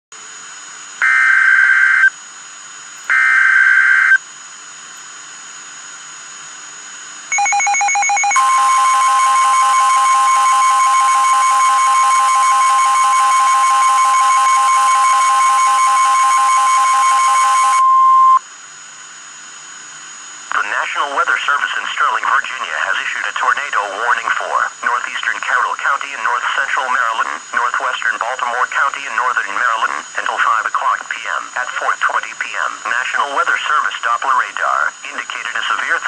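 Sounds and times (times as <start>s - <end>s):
loud steady alert tone: 7.3s - 18.4s
steady hiss: 18.4s - 36.0s.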